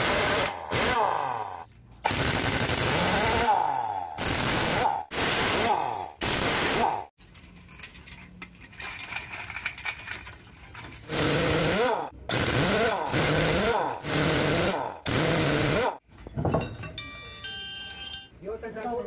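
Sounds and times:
impact wrench bursts: 0:00.0 - 0:07.1, 0:11.0 - 0:16.0
clinking and rattling: 0:07.2 - 0:11.1, 0:16.0 - 0:17.1.

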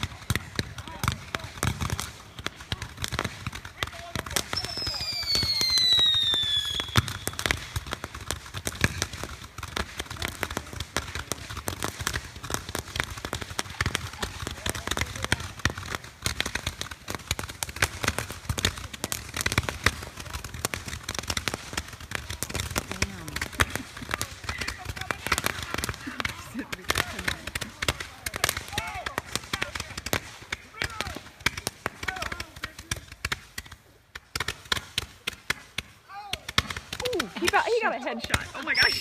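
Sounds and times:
firework crackling pops: 0:00.0 - 0:39.0
falling firework whistle: 0:04.5 - 0:07.5, 0:38.7 - 0:39.0.

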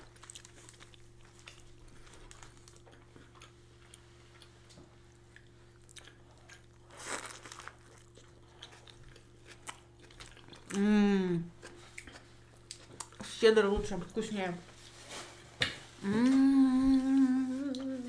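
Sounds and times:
faint chewing: 0:00.1 - 0:13.4.

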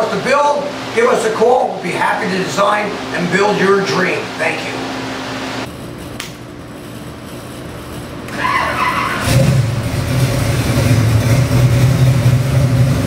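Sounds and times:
starter motor cranking: 0:08.3 - 0:09.7
engine idling loudly: 0:08.3 - 0:13.0.

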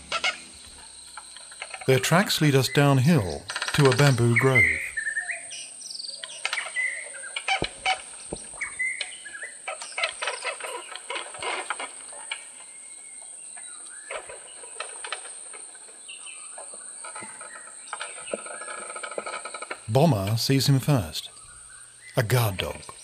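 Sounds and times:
high insect buzz: 0:00.0 - 0:03.0
forest birds chirping and clucking: 0:00.0 - 0:23.0.

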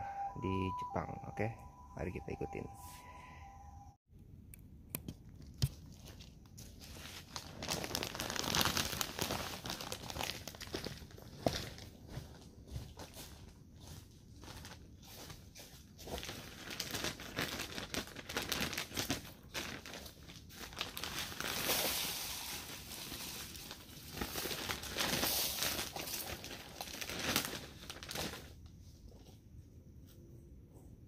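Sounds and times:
plastic sack crinkling: 0:05.7 - 0:12.3, 0:14.4 - 0:28.6.

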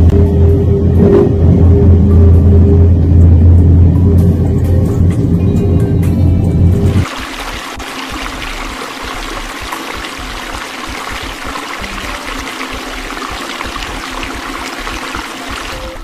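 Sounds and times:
water pouring into a tank: 0:06.9 - 0:16.0.

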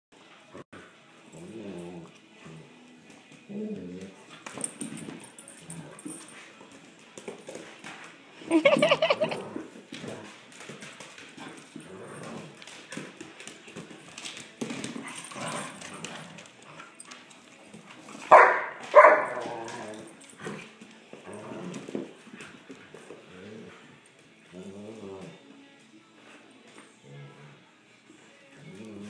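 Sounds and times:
dogs play growling and whining: 0:00.4 - 0:29.0
sharp dog barks: 0:18.3 - 0:19.4.

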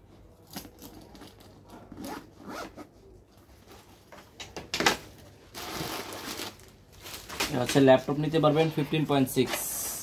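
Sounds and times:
backpack zipper being pulled: 0:02.0 - 0:02.8.

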